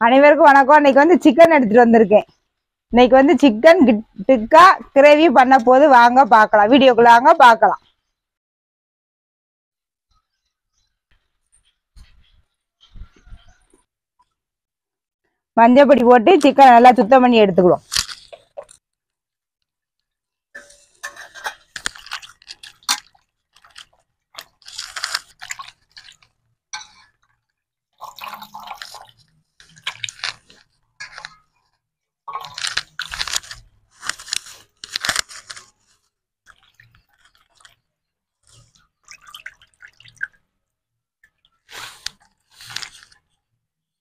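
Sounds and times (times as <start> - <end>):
splashing and wet squelching: 21.6 - 27.3, 28.0 - 31.5, 36.4 - 40.6.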